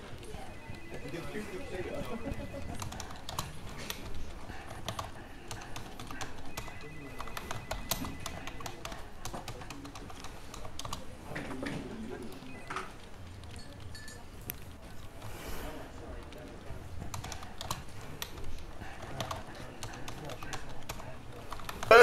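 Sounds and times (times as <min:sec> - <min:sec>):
typing on computer keyboard: 0:02.0 - 0:11.2, 0:16.2 - 0:21.9.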